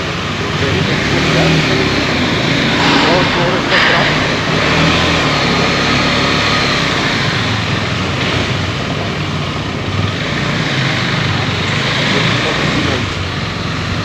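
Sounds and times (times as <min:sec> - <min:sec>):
motorcycle running at low speed: 0:00.0 - 0:03.6, 0:04.2 - 0:14.0
steady rushing noise: 0:00.0 - 0:08.9.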